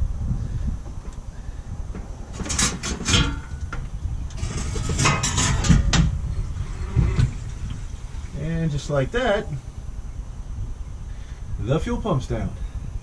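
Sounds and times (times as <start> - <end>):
metal scraping and clanking: 2.3 - 7.9.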